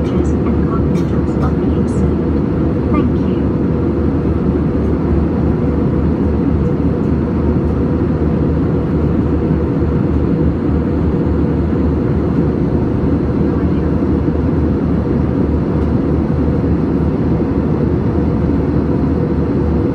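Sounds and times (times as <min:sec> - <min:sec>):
jet engines rumbling in cabin: 0:00.0 - 0:19.9.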